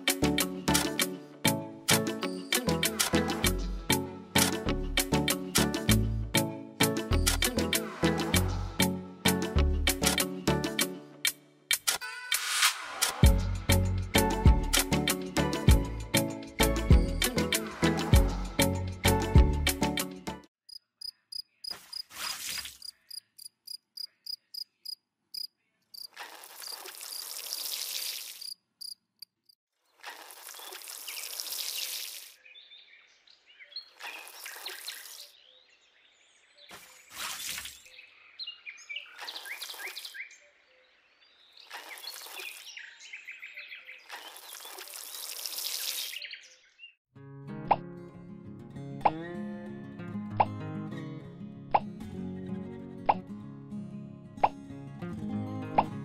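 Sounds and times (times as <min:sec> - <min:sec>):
water splashing into plastic pond: 0:26.2 - 0:28.4, 0:30.0 - 0:32.4, 0:34.0 - 0:35.2, 0:41.7 - 0:42.8, 0:44.1 - 0:46.2
water trickling over sand: 0:26.2 - 0:28.6, 0:30.0 - 0:32.4, 0:34.0 - 0:35.2, 0:41.7 - 0:42.8, 0:44.1 - 0:46.3.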